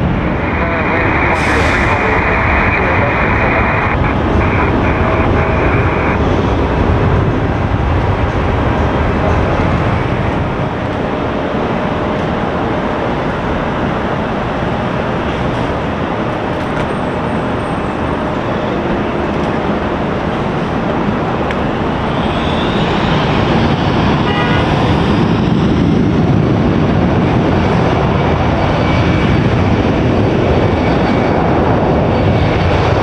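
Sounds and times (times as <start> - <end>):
jet engine rumble: 0.0 - 33.0
radio transmission: 0.1 - 7.2.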